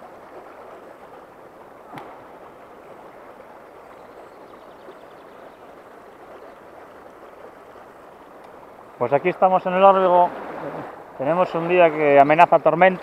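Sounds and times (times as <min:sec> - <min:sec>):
shallow river water flowing: 0:00.0 - 0:13.0.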